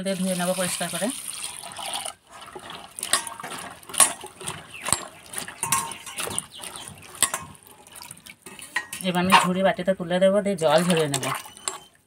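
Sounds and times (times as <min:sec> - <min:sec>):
hand swishing vegetables in water: 0:02.3 - 0:09.4
clinks against metal bowl: 0:03.1 - 0:07.6, 0:08.5 - 0:09.6.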